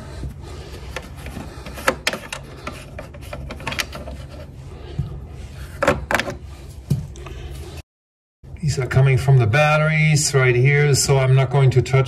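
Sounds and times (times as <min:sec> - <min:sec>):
steady low hum: 0:00.0 - 0:07.8.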